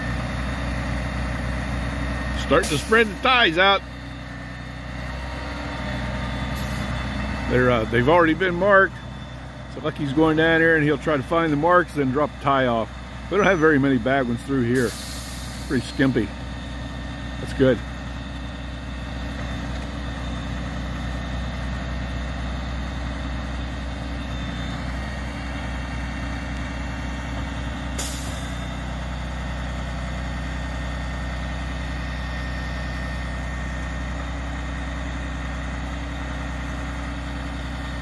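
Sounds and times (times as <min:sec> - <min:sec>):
diesel engine running: 0:00.0 - 0:38.0
hiss of released air: 0:14.8 - 0:15.7.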